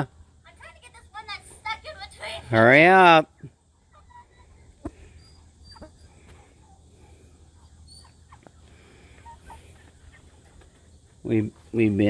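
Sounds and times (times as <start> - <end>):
chickens short high calls: 3.8 - 10.7
scuffles in wooden coop: 8.3 - 11.8.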